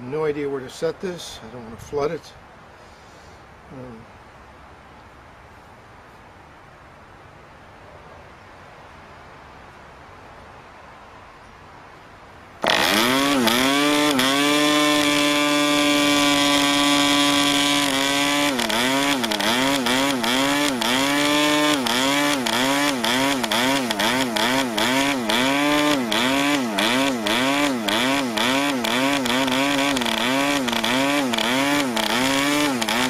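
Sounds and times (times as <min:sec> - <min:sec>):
model aircraft engine running: 0:12.6 - 0:33.0.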